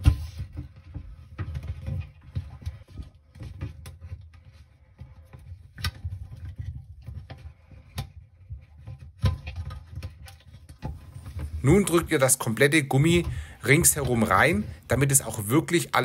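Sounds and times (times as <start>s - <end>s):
rubbing and scraping rubber seal: 0.0s - 16.0s.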